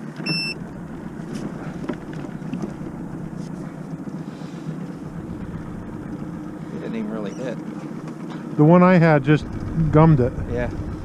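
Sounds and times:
boat motor rumbling: 0.0s - 11.0s
short high electronic beep: 0.2s - 0.6s.

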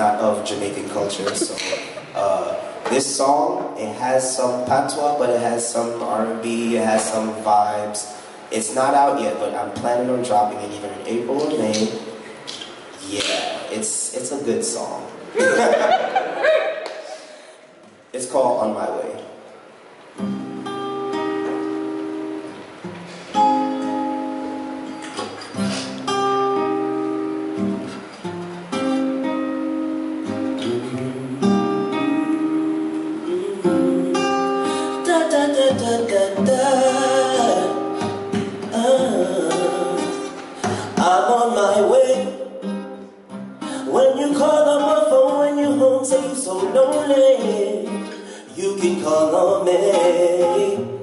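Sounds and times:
acoustic guitar chords: 0.0s - 16.4s, 19.6s - 51.0s
man singing: 2.2s - 10.5s, 30.5s - 42.5s, 43.7s - 51.0s.

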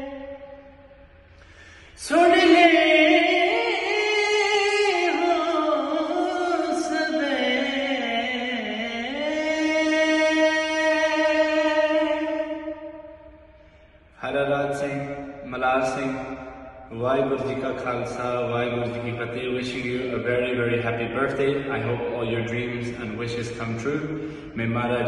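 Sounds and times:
man singing unaccompanied: 2.0s - 12.6s.

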